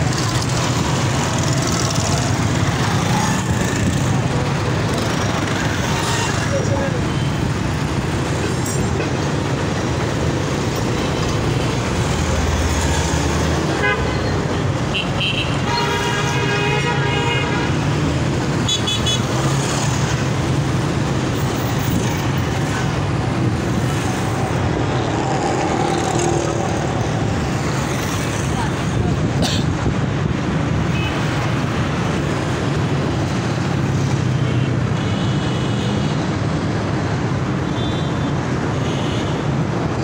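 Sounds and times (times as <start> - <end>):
engine and road noise: 0.0 - 40.0
vehicle horns tooting: 13.7 - 17.8.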